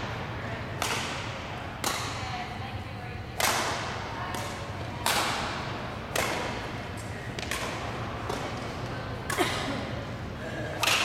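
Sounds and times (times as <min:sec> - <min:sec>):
racket smacking shuttlecock: 0:00.8 - 0:02.2, 0:03.4 - 0:09.4.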